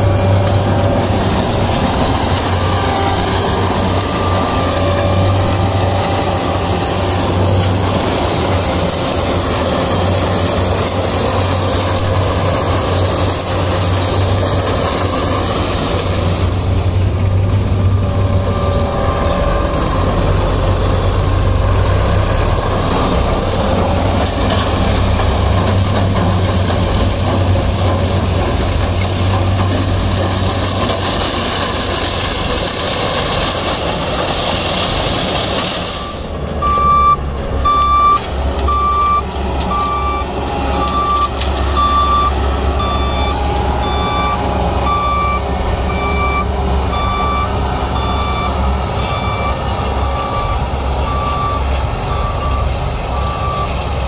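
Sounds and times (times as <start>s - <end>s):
harvester engine humming: 0.0s - 54.0s.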